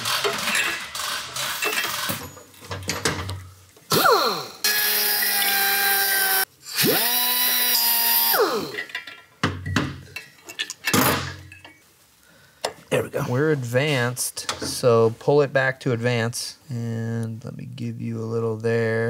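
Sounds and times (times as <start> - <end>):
grinder cutting metal: 3.9 - 8.9.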